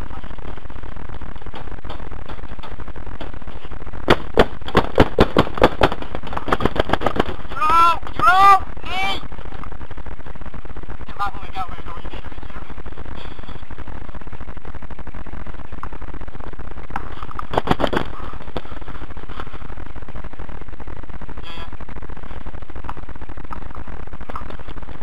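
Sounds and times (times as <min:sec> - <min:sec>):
electrical buzz: 0:00.0 - 0:25.0
sharp knocks: 0:04.1 - 0:07.4.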